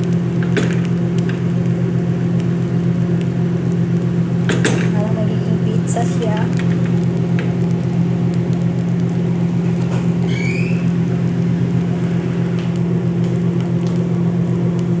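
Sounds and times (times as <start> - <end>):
appliance motor hum: 0.0 - 15.0
short rising squeak: 10.2 - 11.0.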